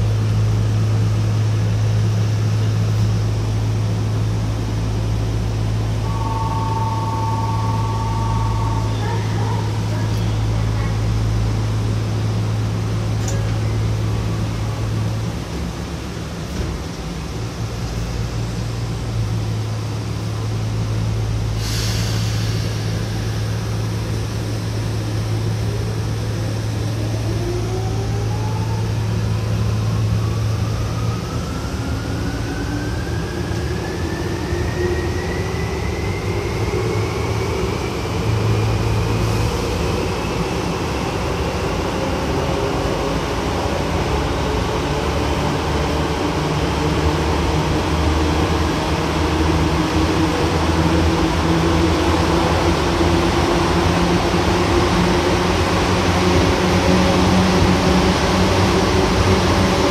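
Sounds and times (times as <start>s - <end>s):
train rumble: 0.0s - 59.9s
train traction motors whining: 0.0s - 59.9s.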